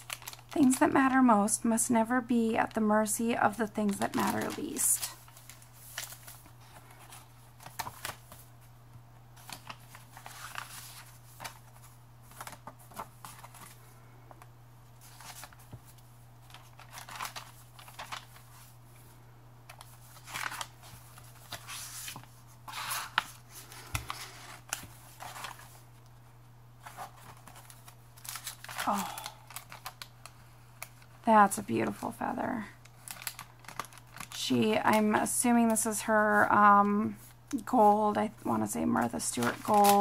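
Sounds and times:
paper pages rustling: 0:00.0 - 0:00.9, 0:03.6 - 0:08.7, 0:09.4 - 0:19.1, 0:19.7 - 0:30.1, 0:32.9 - 0:36.4, 0:38.6 - 0:40.0.

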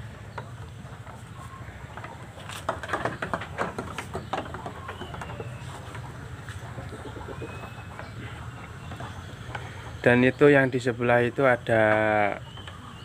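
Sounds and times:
hooves tapping on bamboo floor: 0:00.3 - 0:09.8.

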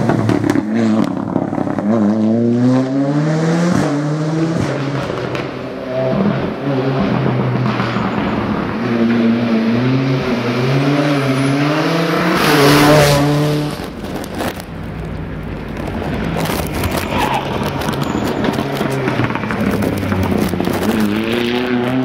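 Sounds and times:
engine cracks and pops: 0:00.0 - 0:01.9, 0:13.7 - 0:22.0
rally car engine accelerating: 0:00.0 - 0:14.0, 0:16.5 - 0:22.0.

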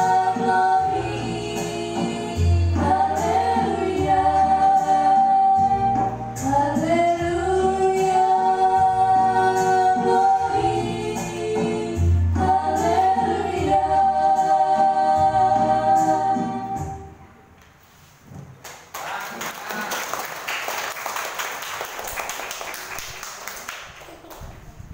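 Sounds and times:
women singing a duet: 0:00.0 - 0:17.2
audience applause: 0:18.8 - 0:24.8.

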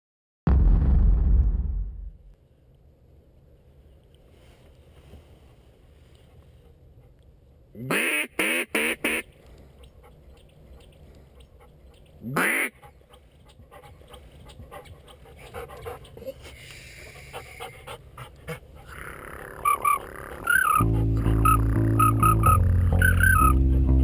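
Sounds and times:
duck call quacks: 0:07.8 - 0:09.3, 0:12.2 - 0:12.9, 0:18.9 - 0:23.6.

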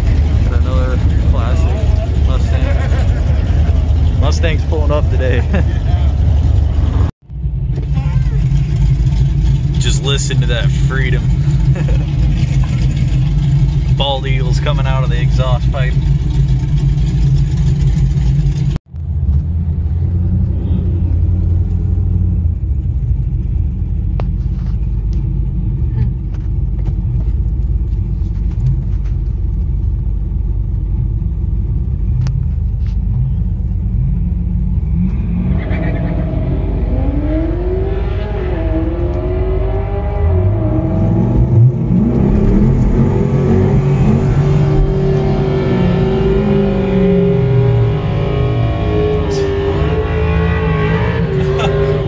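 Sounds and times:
engines revving: 0:00.0 - 0:22.5, 0:33.9 - 0:52.0
car engine idling: 0:00.0 - 0:35.0, 0:40.5 - 0:48.2.

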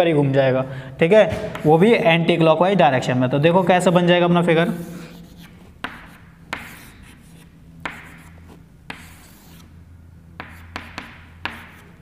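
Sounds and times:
chalk scratching on blackboard: 0:04.8 - 0:09.8, 0:10.4 - 0:12.0
chalk tapping on blackboard: 0:05.1 - 0:09.7, 0:10.4 - 0:12.0.

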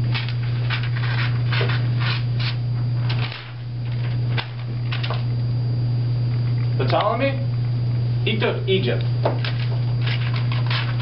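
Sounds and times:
loud low hum: 0:00.0 - 0:11.0
paper rustling: 0:00.2 - 0:04.2, 0:09.5 - 0:11.0.

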